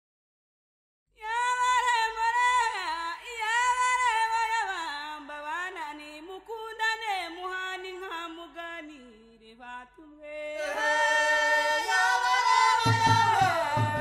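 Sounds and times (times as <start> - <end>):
woman singing unaccompanied: 1.2 - 10.8, 12.7 - 14.0.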